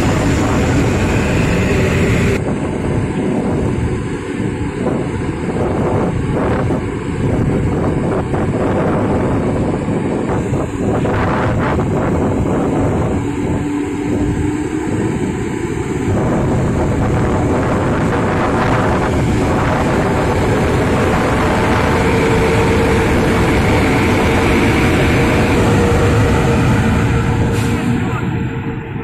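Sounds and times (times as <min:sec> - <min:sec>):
train wheels rumbling: 0:00.0 - 0:29.0.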